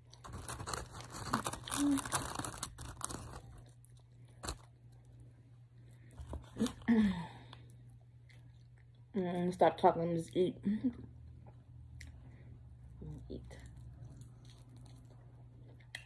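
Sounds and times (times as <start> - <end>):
paper wrapper crinkling: 0.0 - 4.7
crunching and chewing: 0.0 - 9.1, 11.3 - 16.0.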